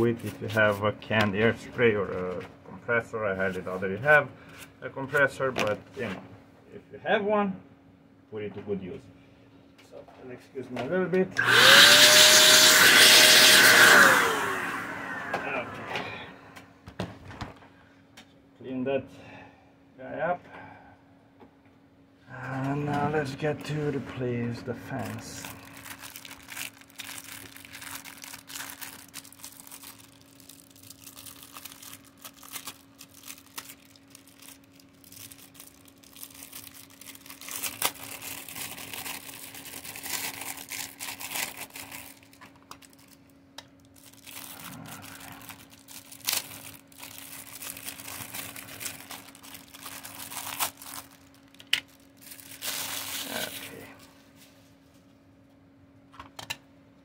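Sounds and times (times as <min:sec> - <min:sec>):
faint steady hum: 0:14.5 - 0:57.0
plastic wrapping crinkling: 0:24.9 - 0:54.1.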